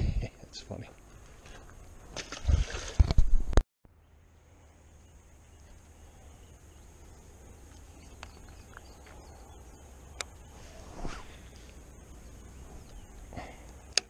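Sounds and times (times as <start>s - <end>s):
faint high-pitched hum: 3.9s - 14.0s
low rumble: 4.0s - 14.0s.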